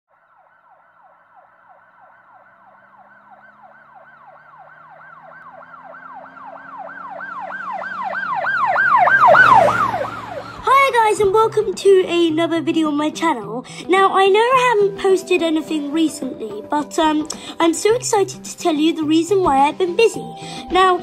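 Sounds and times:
emergency siren yelping: 0.1s - 11.2s.

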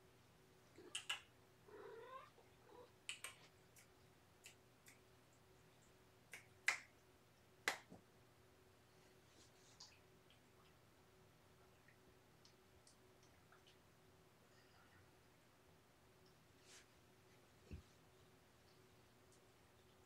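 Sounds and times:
cat meowing: 1.7s - 2.8s.

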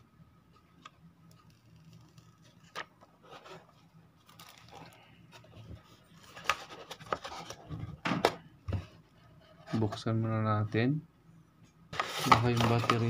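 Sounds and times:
cardboard and paper rustling: 1.9s - 8.0s, 12.0s - 13.0s.

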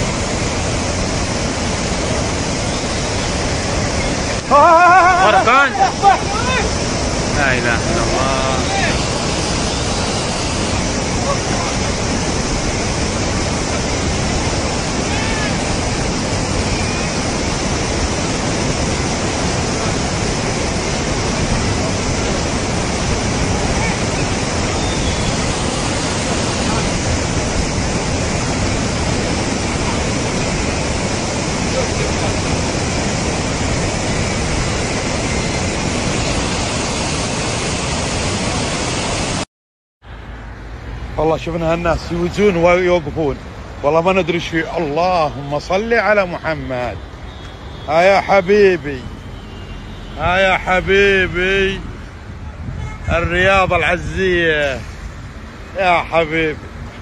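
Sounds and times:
floodwater rushing: 0.0s - 39.5s, 40.2s - 57.0s.

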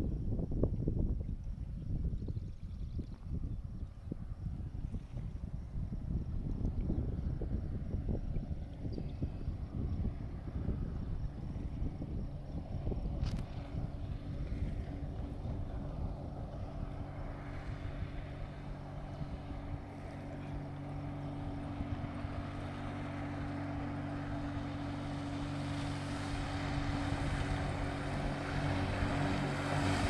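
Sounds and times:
motorboat engine hum: 0.0s - 30.0s
hull and spray rushing: 12.7s - 30.0s.

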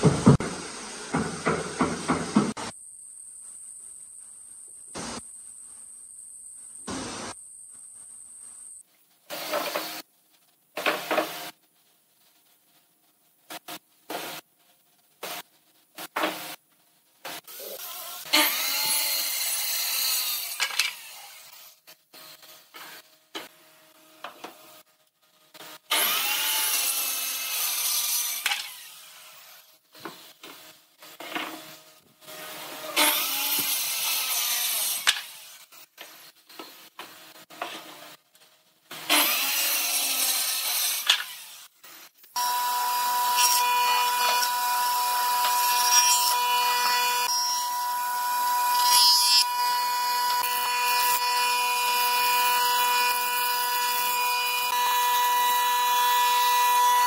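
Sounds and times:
circular saw cutting wood: 17.4s - 23.1s, 25.6s - 30.3s, 31.1s - 38.2s, 38.9s - 57.0s.

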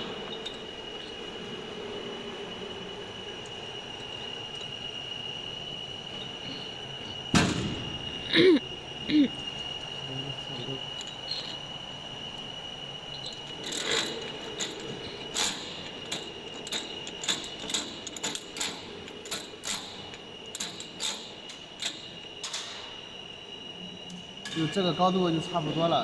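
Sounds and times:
high-pitched whine: 0.0s - 19.0s.

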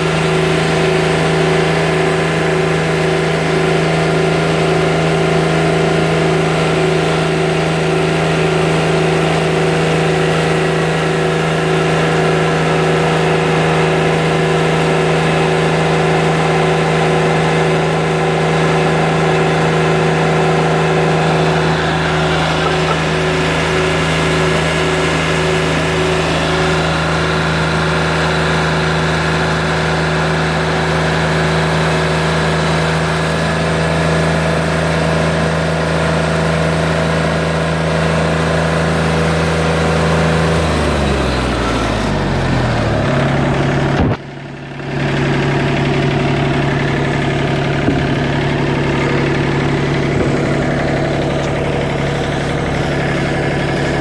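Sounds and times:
sawmill engine running: 0.0s - 54.0s
band blade sawing log: 12.7s - 29.4s, 48.8s - 54.0s.

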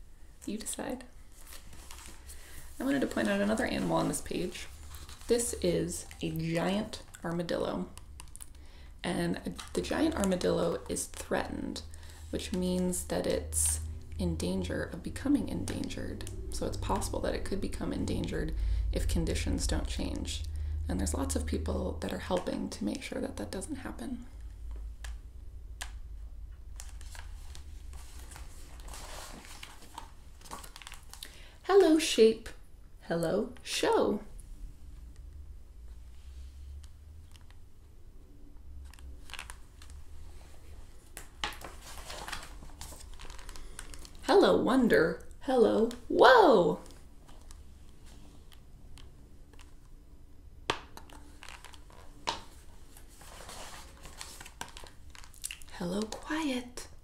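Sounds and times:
paper pages rustling: 1.2s - 7.2s, 26.7s - 31.3s, 38.8s - 44.2s, 51.0s - 56.2s.

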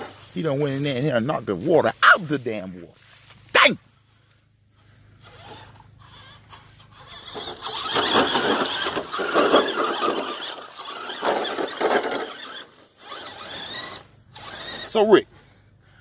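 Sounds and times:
electric motor whining: 5.1s - 15.2s.

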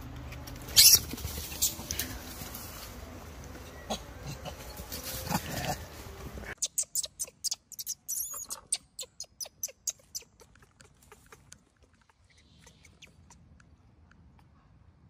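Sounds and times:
baby monkey squeaking: 0.7s - 1.8s, 6.6s - 11.5s.

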